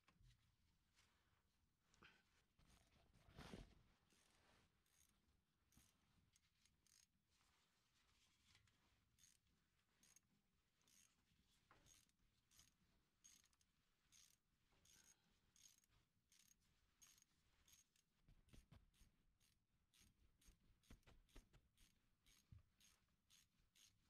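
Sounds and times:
ratchet wrench clicking: 0:09.2 - 0:09.4, 0:10.9 - 0:11.1, 0:11.9 - 0:18.0, 0:22.3 - 0:23.9.

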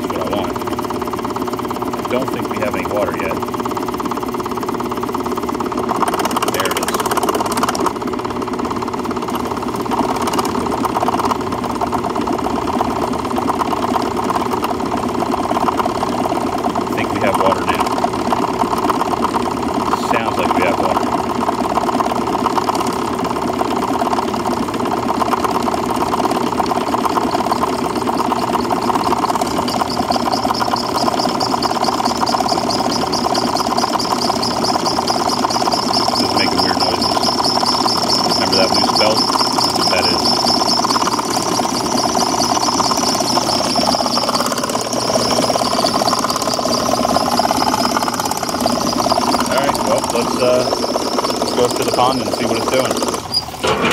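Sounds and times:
electric water pump running: 0:00.0 - 0:53.9
thin high whine: 0:26.4 - 0:53.9.

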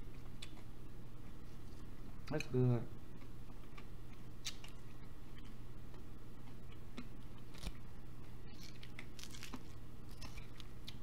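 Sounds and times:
steady low hum: 0:00.0 - 0:11.0
chewing salad: 0:03.2 - 0:11.0.

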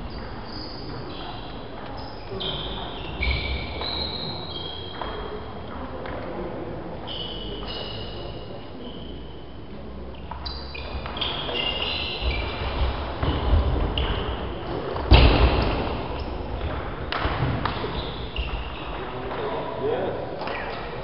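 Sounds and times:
loud thump: 0:15.0 - 0:16.3.

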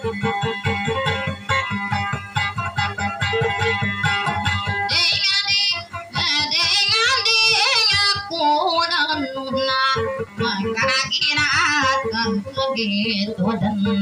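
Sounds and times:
guitar accompaniment: 0:00.0 - 0:14.0
woman singing in a high voice: 0:04.9 - 0:14.0.

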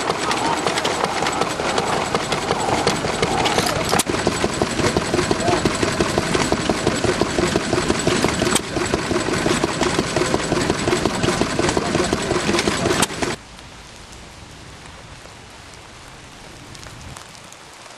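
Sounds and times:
stationary engine beating rhythmically: 0:00.0 - 0:13.4
steady hiss: 0:13.1 - 0:17.9.

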